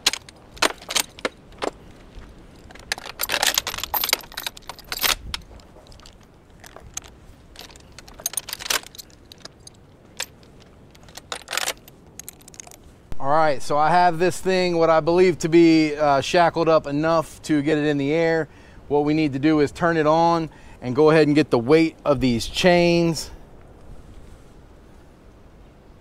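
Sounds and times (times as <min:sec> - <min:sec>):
chains clinking against metal cage: 0:00.0 - 0:01.7, 0:02.5 - 0:12.8.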